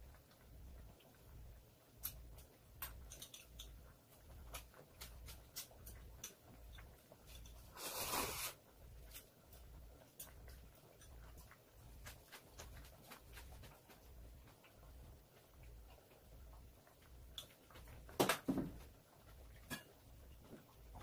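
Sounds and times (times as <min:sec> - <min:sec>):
chopsticks clicking on bowls: 0:02.0 - 0:07.6
scraping rustle: 0:07.6 - 0:08.6.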